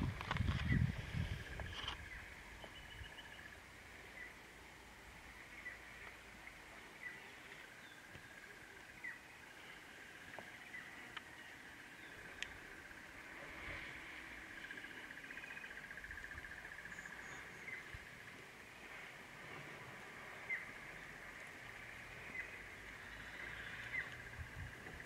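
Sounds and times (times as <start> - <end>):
wind rumble on microphone: 0.0 - 3.6, 15.8 - 25.0
birds chirping: 0.5 - 25.0.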